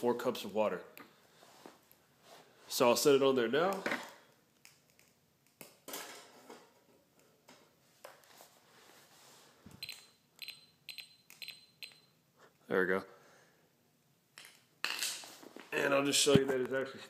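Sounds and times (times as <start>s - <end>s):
digital stopwatch beeps: 9.8s - 12.1s.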